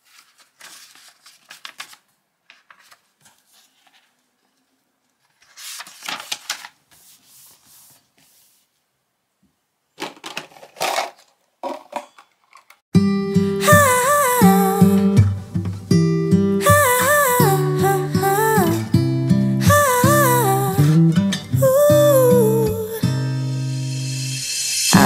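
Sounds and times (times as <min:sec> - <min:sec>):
paper pages rustling and turning: 0:00.0 - 0:08.8
acoustic guitar music: 0:13.0 - 0:24.3.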